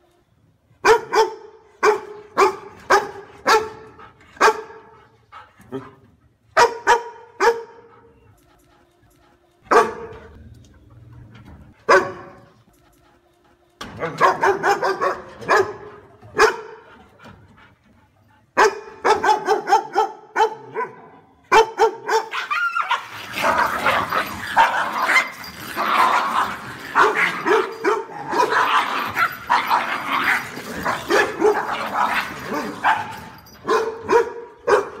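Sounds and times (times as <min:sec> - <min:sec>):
dog barking: 0:00.8 - 0:04.9, 0:06.6 - 0:07.9, 0:09.7 - 0:10.2, 0:11.8 - 0:12.4, 0:14.0 - 0:16.9, 0:18.6 - 0:25.3, 0:27.0 - 0:29.8, 0:31.0 - 0:35.0.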